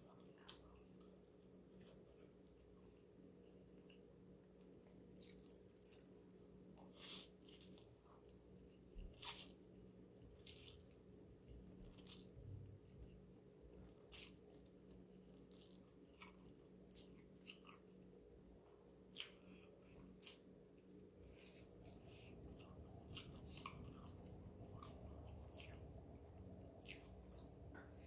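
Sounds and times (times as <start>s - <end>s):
faint steady hum: 0.0s - 28.0s
wet chewing: 4.8s - 12.8s, 13.9s - 18.0s, 19.0s - 28.0s.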